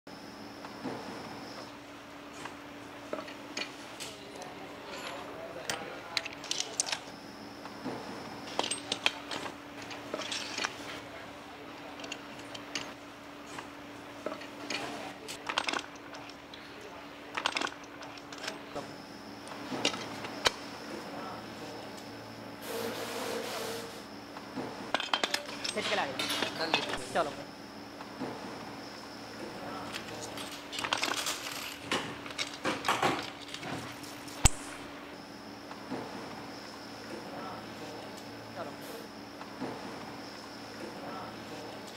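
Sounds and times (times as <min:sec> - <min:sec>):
metal engine parts clinking: 0:04.8 - 0:07.1, 0:08.5 - 0:11.0, 0:15.4 - 0:18.7, 0:24.9 - 0:27.0, 0:29.9 - 0:34.5.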